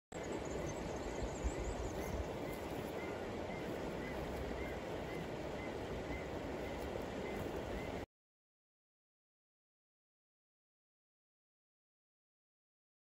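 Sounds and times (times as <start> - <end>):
river rushing over rocks: 0.2 - 8.0
wind rumble: 0.2 - 8.0.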